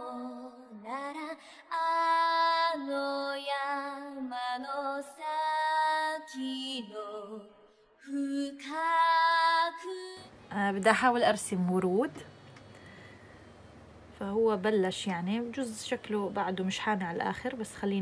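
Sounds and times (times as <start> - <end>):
woman singing slow long notes: 0.0 - 10.3.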